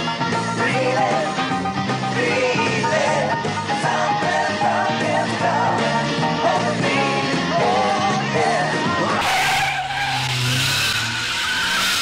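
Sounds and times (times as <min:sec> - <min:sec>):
rock song with singing: 0:00.0 - 0:10.1
road noise: 0:08.7 - 0:12.0
tyres squealing: 0:09.2 - 0:12.0.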